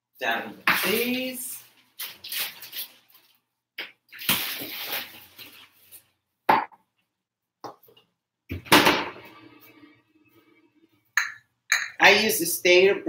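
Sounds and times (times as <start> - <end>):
rustling and handling noise: 0.7 - 6.3.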